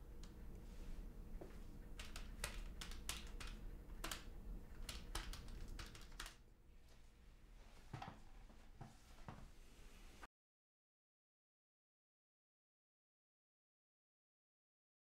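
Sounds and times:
keys tapping: 1.9s - 6.4s.

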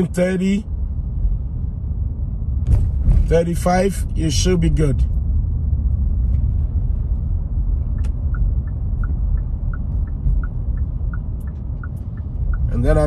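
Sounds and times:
car cabin rumble: 0.7s - 13.0s
turn signal ticking: 7.8s - 13.0s.

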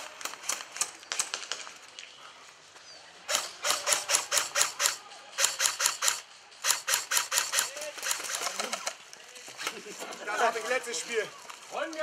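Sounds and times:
airsoft guns firing: 3.3s - 8.9s.

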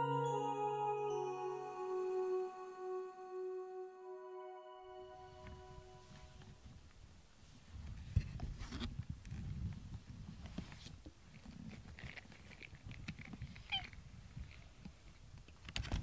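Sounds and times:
cat meow: 13.6s - 14.0s.

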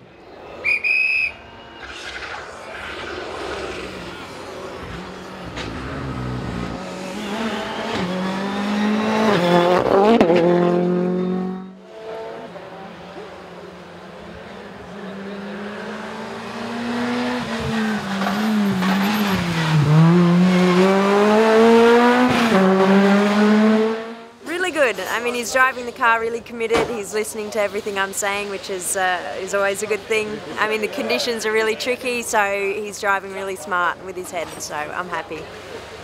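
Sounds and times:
rally car engines revving past: 1.7s - 24.4s.

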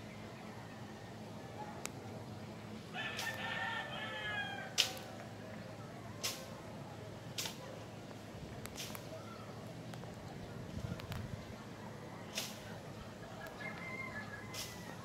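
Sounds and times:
rooster crowing: 2.9s - 4.8s, 13.4s - 15.0s.

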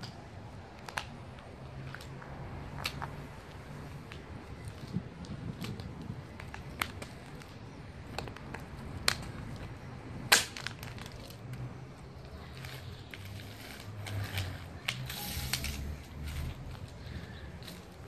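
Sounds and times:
plastic toy cracking underfoot: 4.1s - 18.0s.

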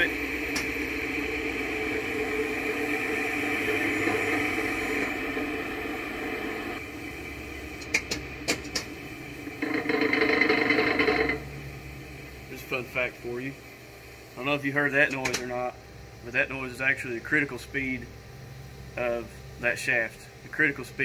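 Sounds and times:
machine vibration noise: 0.0s - 14.4s
fan wheel spinning down hum: 0.0s - 21.0s.

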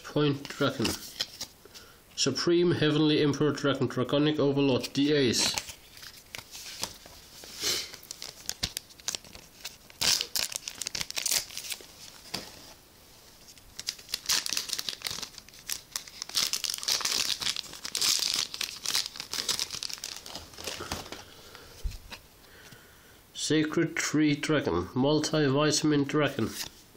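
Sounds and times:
wrapper tearing and crinkling: 7.8s - 12.4s, 13.7s - 21.2s.

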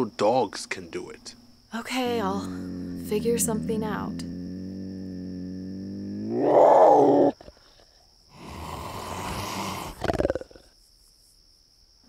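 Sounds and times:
cougar snarling and growling: 1.8s - 10.7s.

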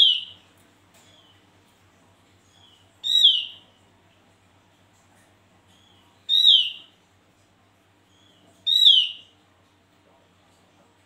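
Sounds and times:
bird whistling downslurred calls: 0.0s - 0.4s, 3.0s - 3.6s, 6.3s - 6.8s, 8.7s - 9.2s.

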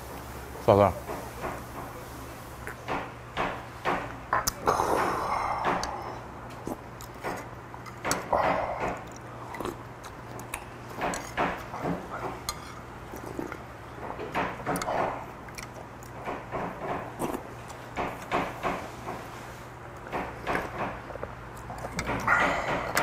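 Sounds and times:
chewing: 4.4s - 13.7s, 14.6s - 18.3s, 20.5s - 23.0s.

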